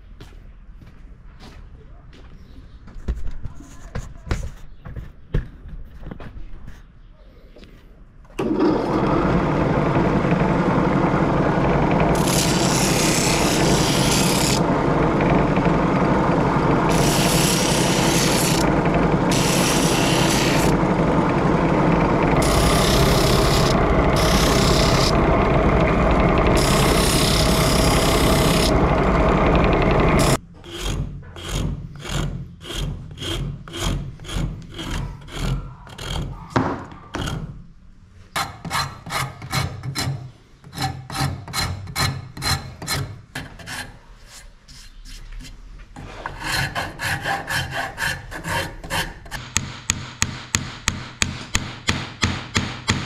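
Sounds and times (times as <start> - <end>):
drum sander motor hum: 8.4 - 30.4
hand tool strokes on wood: 11.7 - 14.7, 16.3 - 30.4
wood hissing against sandpaper: 19.3 - 20.8.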